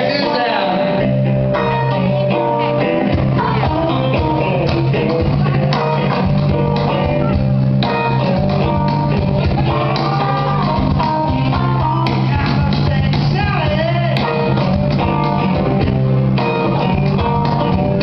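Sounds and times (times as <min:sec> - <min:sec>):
acoustic-electric guitar: 0:00.0 - 0:18.0
electric bass guitar: 0:00.0 - 0:18.0
live band playing: 0:00.0 - 0:18.0
cajon drumming: 0:03.0 - 0:18.0.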